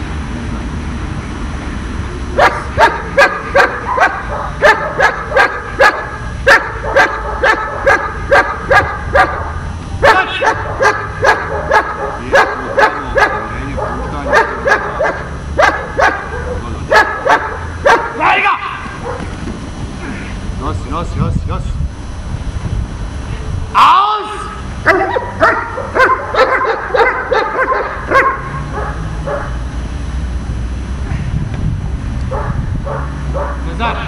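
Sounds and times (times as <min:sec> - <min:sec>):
dog barking: 0:02.4 - 0:18.2, 0:19.0 - 0:19.3, 0:24.9 - 0:29.6, 0:32.3 - 0:33.7.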